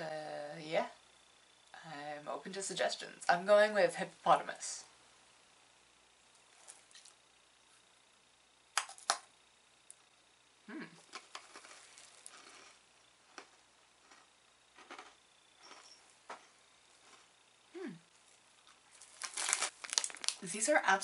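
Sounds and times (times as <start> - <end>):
cookie crunching being bitten: 8.8 - 9.3, 10.8 - 17.3, 18.2 - 20.4
crunching chews: 11.0 - 17.4, 18.2 - 20.4.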